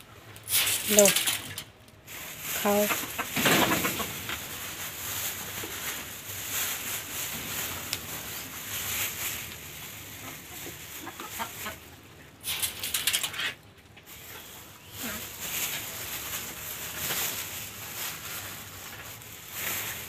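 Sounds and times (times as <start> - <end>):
loud rustling: 0.6 - 11.0
chickens clucking: 2.8 - 4.5, 8.8 - 12.4.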